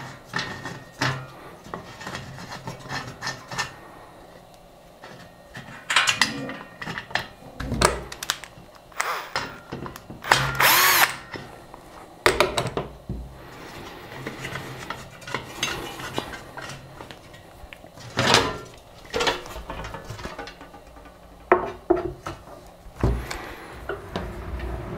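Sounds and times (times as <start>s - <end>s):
metal parts clicking and knocking: 7.8s - 11.4s
cordless drill whining: 8.9s - 9.6s, 10.2s - 11.2s.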